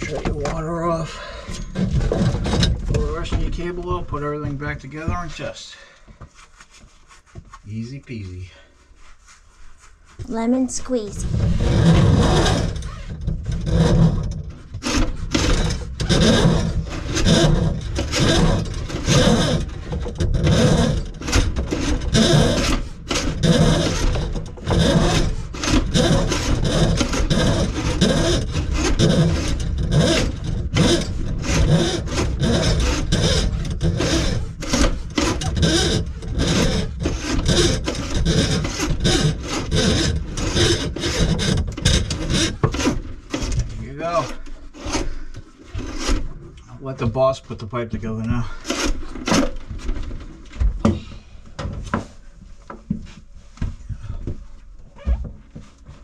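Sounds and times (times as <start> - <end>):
rasping on plastic pipe: 11.2 - 46.5, 47.2 - 54.4.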